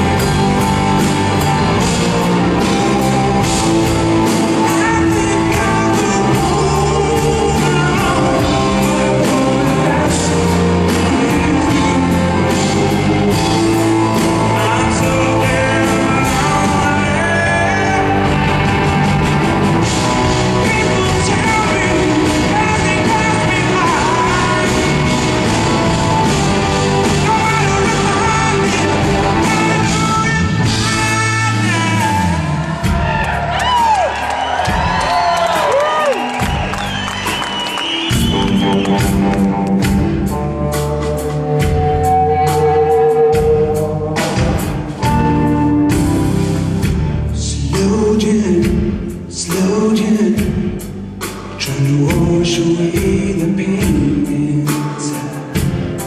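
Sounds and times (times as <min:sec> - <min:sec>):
bass guitar: 0:00.0 - 0:56.0
drum kit: 0:00.0 - 0:56.0
man singing: 0:02.0 - 0:18.9, 0:19.8 - 0:33.0, 0:47.3 - 0:56.0.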